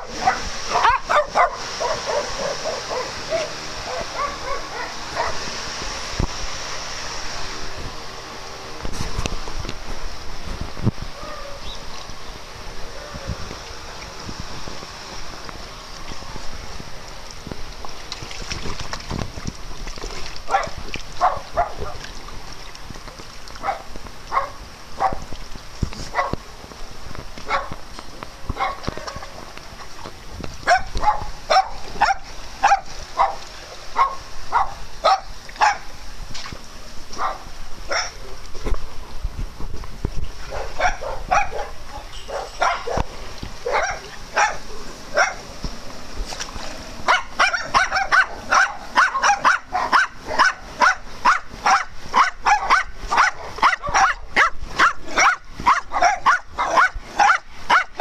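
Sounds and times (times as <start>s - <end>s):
dog barking: 0.1s - 5.4s, 20.5s - 22.0s, 23.6s - 25.2s, 26.1s - 26.4s, 27.5s - 27.8s, 28.6s - 28.8s, 30.7s - 33.4s, 34.0s - 35.9s, 37.2s - 38.2s, 40.5s - 44.6s, 45.2s - 45.4s, 47.1s - 58.0s.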